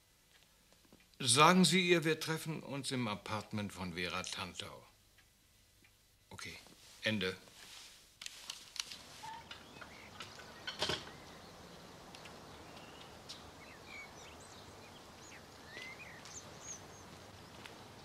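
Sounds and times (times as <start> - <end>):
small birds chirping: 9.0 - 18.0
garden gate clacking shut: 9.2 - 11.4.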